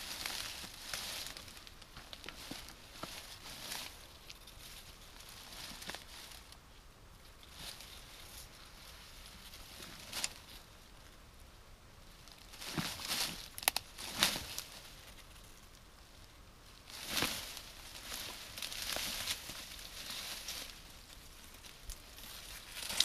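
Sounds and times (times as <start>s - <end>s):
footsteps through dry grass: 0.0s - 6.6s, 12.4s - 15.6s, 16.8s - 23.0s.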